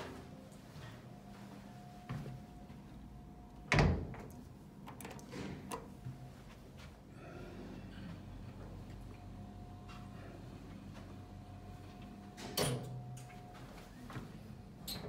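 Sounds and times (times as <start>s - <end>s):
faint steady hum: 0.0s - 15.0s
elevator door thunk: 3.7s - 4.3s.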